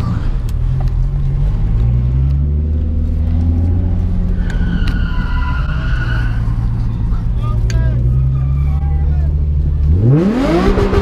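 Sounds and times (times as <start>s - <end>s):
car engine running at low revs: 0.0s - 4.4s.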